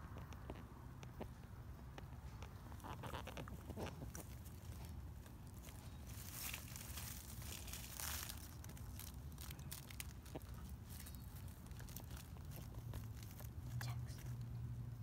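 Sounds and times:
puppy gnawing on twig: 0:02.0 - 0:14.5
rustling dry leaves: 0:02.5 - 0:14.5.

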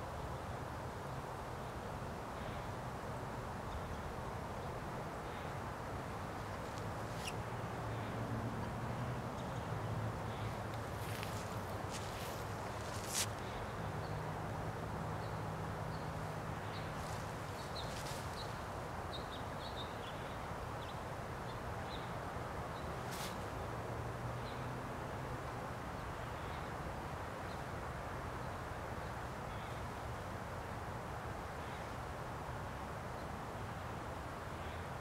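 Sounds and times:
background hiss: 0:00.0 - 0:35.0
birds chirping: 0:15.2 - 0:22.1.

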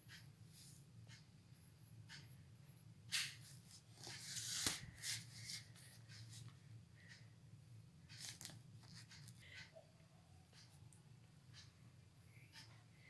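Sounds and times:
paper rustling: 0:03.5 - 0:06.4, 0:08.2 - 0:09.1.

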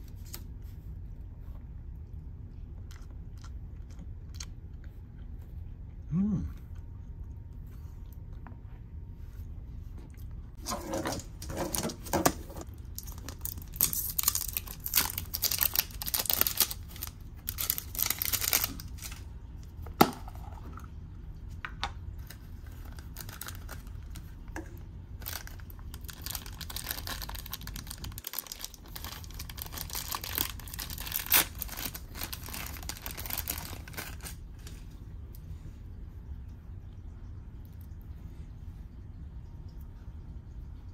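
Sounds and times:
plastic bag crinkling and tearing: 0:10.6 - 0:19.3, 0:22.2 - 0:24.3, 0:25.2 - 0:34.8.

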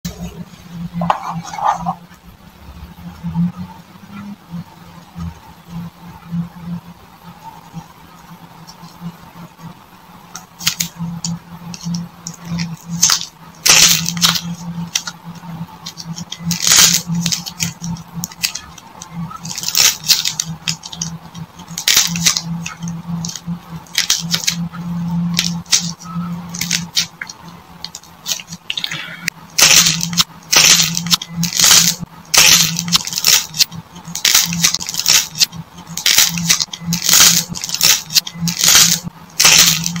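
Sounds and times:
steady low hum: 0:00.0 - 0:40.0
dried clay crust cracking: 0:11.7 - 0:24.6, 0:29.6 - 0:40.0.

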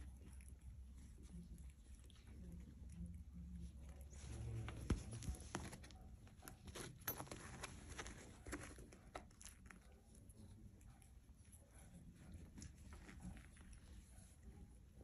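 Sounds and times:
puppies pawing and rustling: 0:03.7 - 0:09.8.

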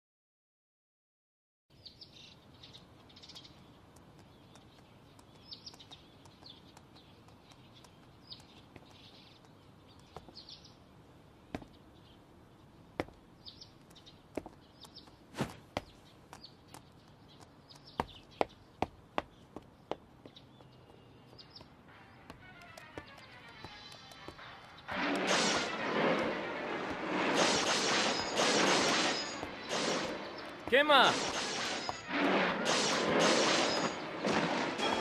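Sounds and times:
small birds chirping: 0:01.7 - 0:24.9, 0:29.0 - 0:32.1
sharp knocks or taps: 0:22.3 - 0:24.4.

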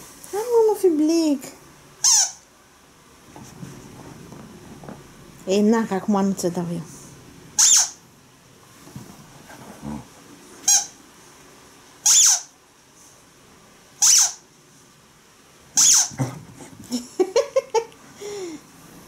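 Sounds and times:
squeaky toy squeals: 0:02.0 - 0:02.4, 0:07.6 - 0:08.0, 0:10.6 - 0:11.0, 0:12.0 - 0:12.5, 0:14.0 - 0:14.4, 0:15.8 - 0:16.2
dog whining: 0:09.8 - 0:11.0, 0:15.8 - 0:16.4.

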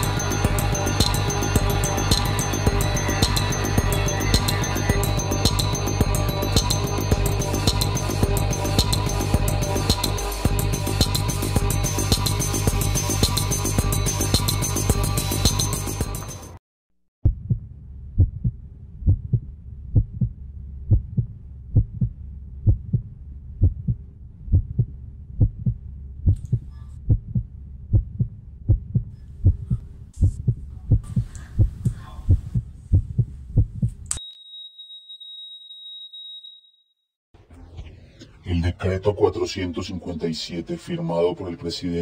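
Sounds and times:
heartbeat thuds: 0:17.2 - 0:34.1.

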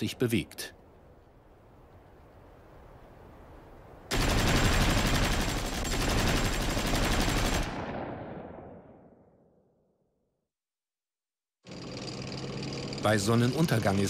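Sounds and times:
machine-gun fire: 0:04.1 - 0:09.0.

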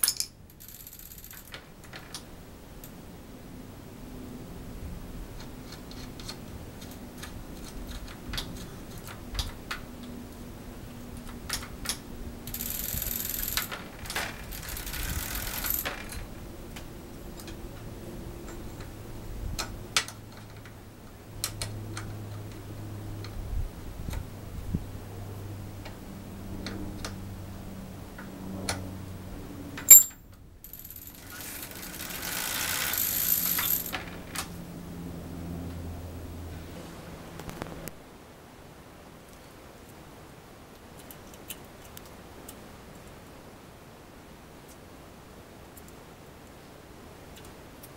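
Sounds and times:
metallic clicks and clinks: 0:00.0 - 0:01.6, 0:29.8 - 0:34.1
bicycle wheel spinning whirr: 0:00.6 - 0:01.5, 0:12.4 - 0:16.1, 0:30.9 - 0:34.2
chain and hub ticking: 0:29.9 - 0:34.1.

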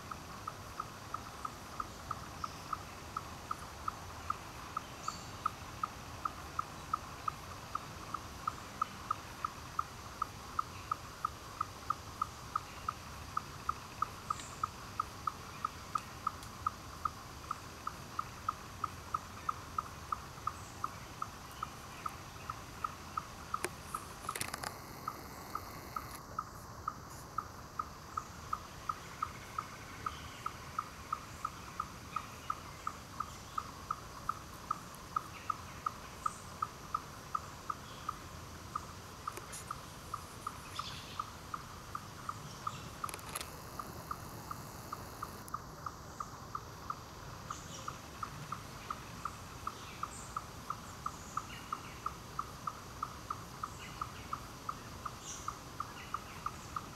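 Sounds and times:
low background hiss: 0:00.0 - 0:56.9
rustle: 0:00.0 - 0:56.9
animal chirping: 0:22.8 - 0:26.2.

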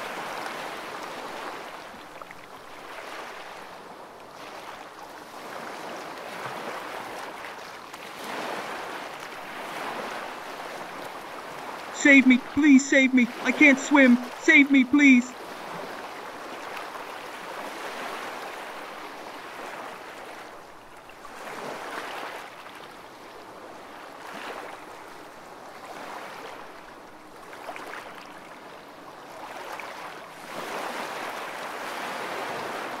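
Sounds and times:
ocean waves washing: 0:12.0 - 0:15.3.

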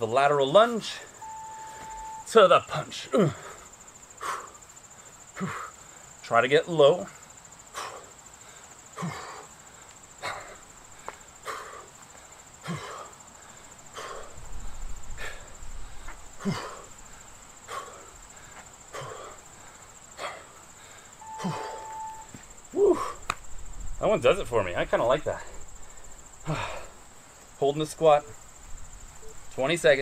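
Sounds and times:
high-pitched insect trill: 0:00.0 - 0:30.0
short beep: 0:01.2 - 0:02.3, 0:21.2 - 0:22.4
man exhaling forcefully with grunts: 0:22.8 - 0:23.2, 0:26.4 - 0:27.0.

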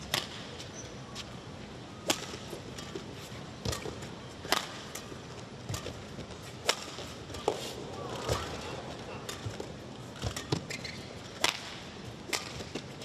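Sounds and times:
sports hall hum: 0:00.0 - 0:13.0
rackets hitting shuttlecock: 0:02.0 - 0:08.6, 0:09.2 - 0:12.9.

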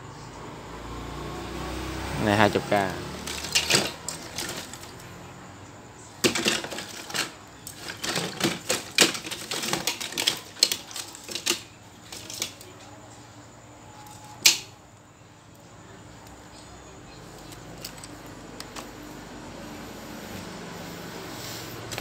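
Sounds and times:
plastic fans clattering together: 0:02.2 - 0:05.2, 0:06.2 - 0:12.8, 0:14.0 - 0:14.8.

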